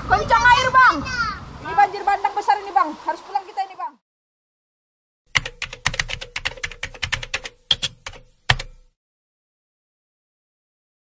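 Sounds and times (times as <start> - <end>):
keyboard typing clicks: 5.3 - 8.8.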